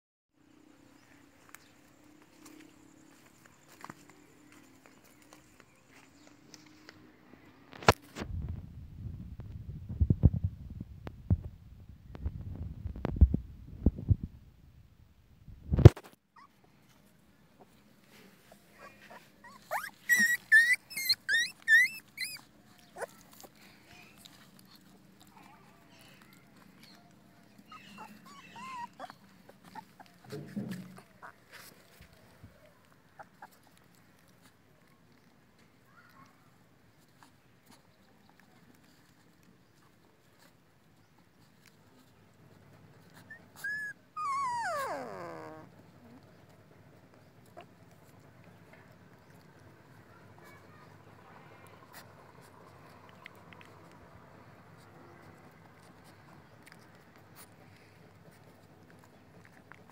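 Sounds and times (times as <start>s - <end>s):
puppies whining: 18.5s - 34.5s, 43.0s - 46.5s.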